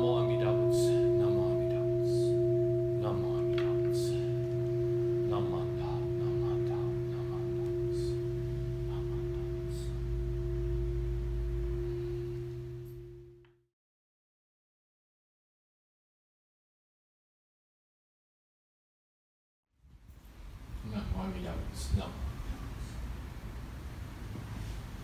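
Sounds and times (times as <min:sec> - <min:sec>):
bowl bell ringing: 0:00.0 - 0:13.4.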